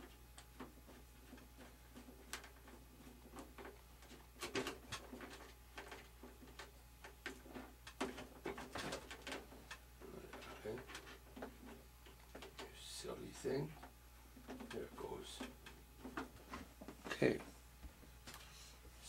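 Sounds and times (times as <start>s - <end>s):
hands clicking and tapping parts: 0.0s - 12.8s
faint steady hum: 0.0s - 19.0s.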